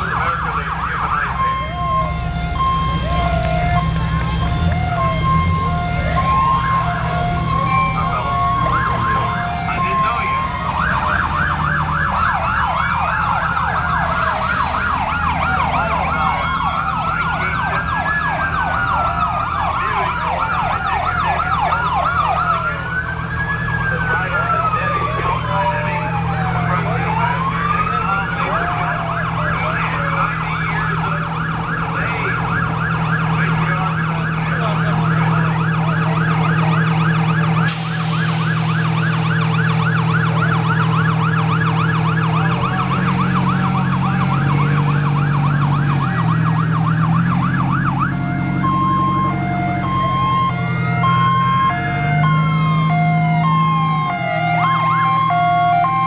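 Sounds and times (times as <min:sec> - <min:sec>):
emergency sirens wailing: 0:00.0 - 0:56.0
truck engines running: 0:00.0 - 0:56.0
two-tone hi-lo siren: 0:00.0 - 0:56.0
burst of hiss: 0:37.7 - 0:39.5.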